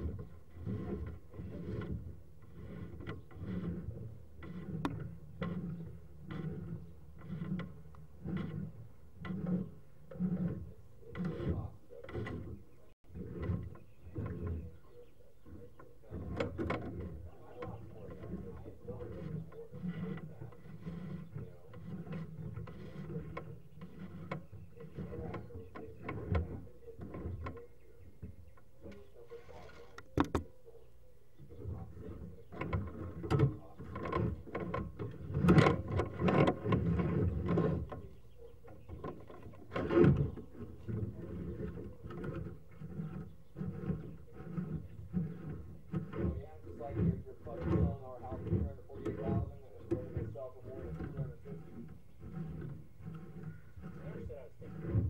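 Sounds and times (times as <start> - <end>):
camera scraping along drain pipe: 0.0 - 55.0.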